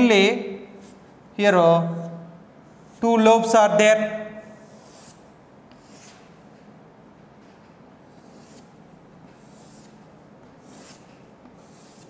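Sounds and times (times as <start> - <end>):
chalk scratching on chalkboard: 1.9 - 3.2, 4.4 - 6.3, 8.1 - 12.0.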